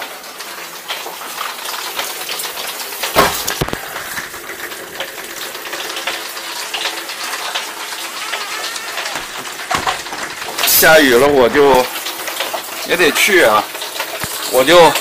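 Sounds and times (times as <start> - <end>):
heavy rain hissing: 2.4 - 15.0
knocks: 3.2 - 3.8, 9.1 - 10.8.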